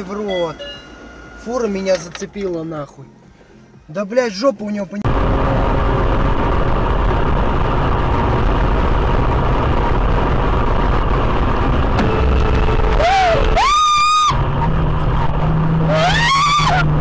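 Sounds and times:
car road and engine noise: 0.0 - 17.0.

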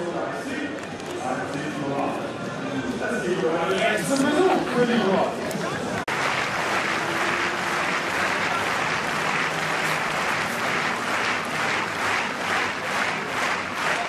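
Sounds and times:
crowd applauding: 5.8 - 14.0
rhythmic clapping: 6.0 - 14.0.

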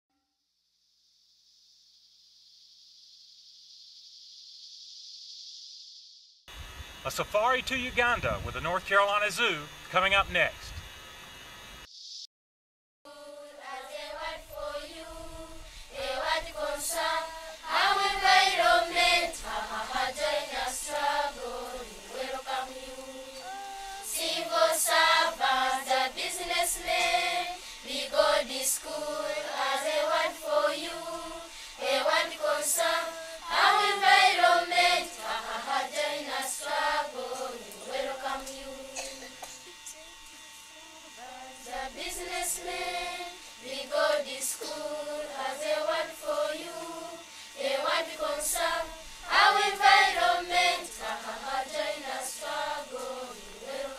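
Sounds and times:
children singing together: 13.1 - 39.3, 41.3 - 53.9.

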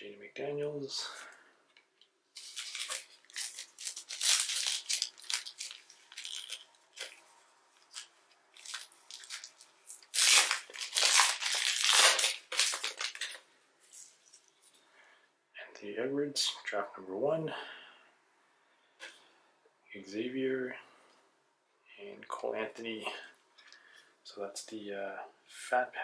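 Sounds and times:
cards and wrappers rustling: 1.9 - 14.8.

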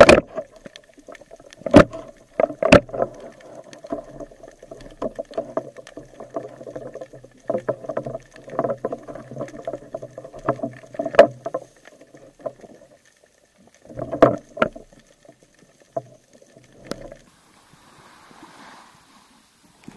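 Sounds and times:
sea surface hiss: 17.3 - 19.9.

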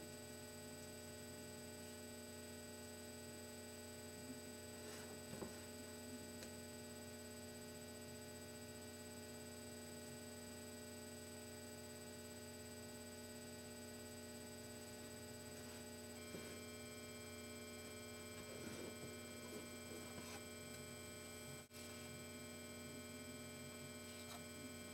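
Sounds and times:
electrical hum with high whine: 0.0 - 24.9
ink brush scratching paper: 18.4 - 20.4.

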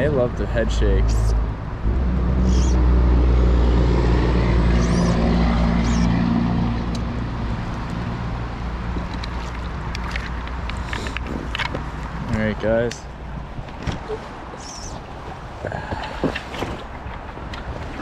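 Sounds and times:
creek water rushing: 4.2 - 12.2.

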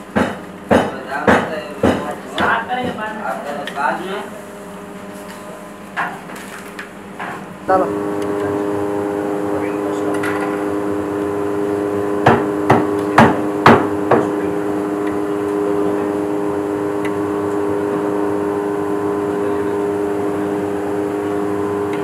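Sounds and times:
droning hum: 0.0 - 22.0
sharp hard knocks: 0.1 - 3.0, 12.2 - 14.3.

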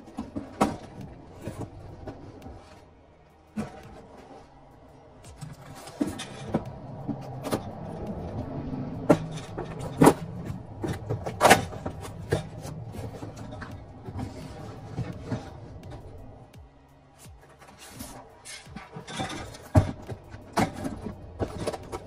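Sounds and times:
boxes and cans clattering: 0.0 - 2.2, 9.0 - 15.6, 17.4 - 22.0.

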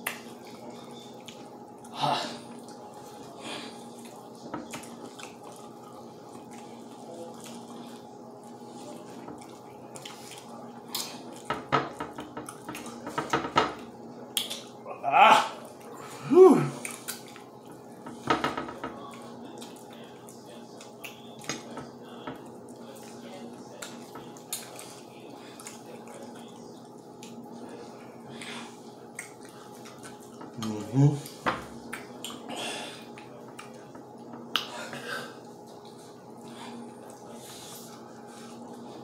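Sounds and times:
wet chewing and lip-smacking: 16.8 - 17.6, 19.1 - 21.5, 29.1 - 32.5.

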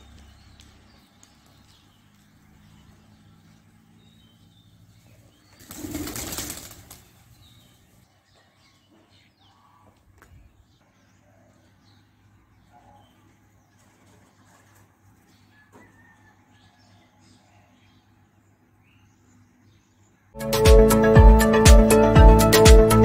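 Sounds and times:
pigeon wings flapping: 5.6 - 7.2.

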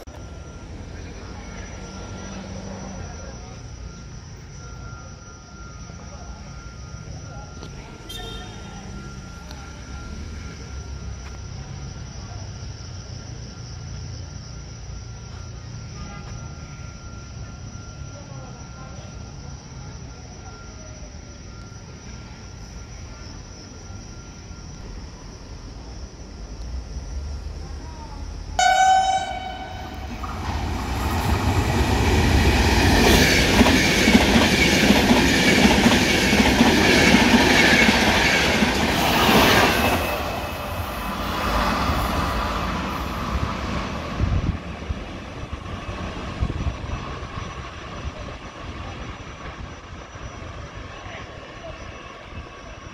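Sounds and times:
train rushing past: 0.0 - 52.9
train horn blast: 28.6 - 30.3.

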